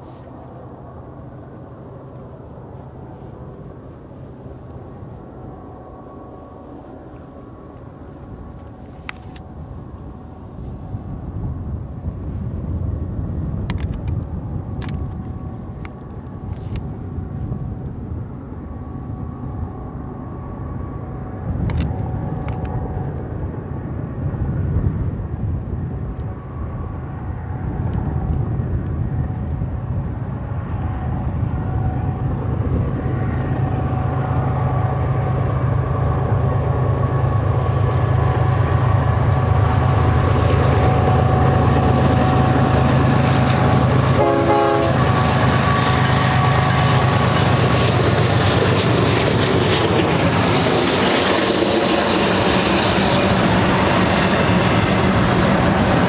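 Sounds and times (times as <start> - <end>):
locomotive engine rumble: 0.0 - 56.0.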